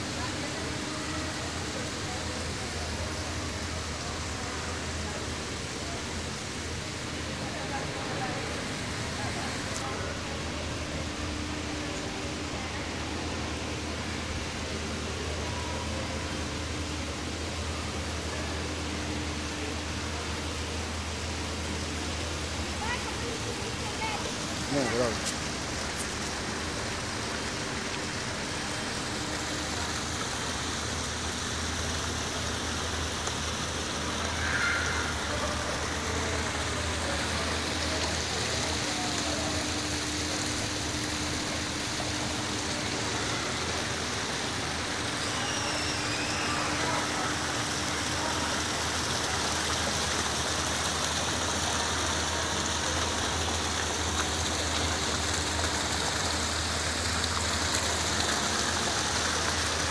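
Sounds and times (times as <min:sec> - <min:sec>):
waterfall splashing: 0:00.0 - 0:59.9.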